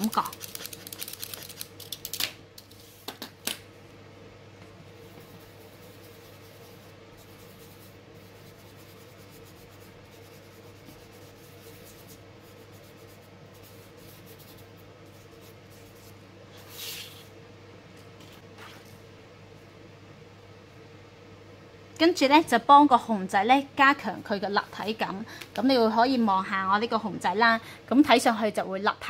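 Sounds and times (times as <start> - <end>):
fingertips rubbing pastel on paper: 0.0 - 1.6, 5.2 - 17.2.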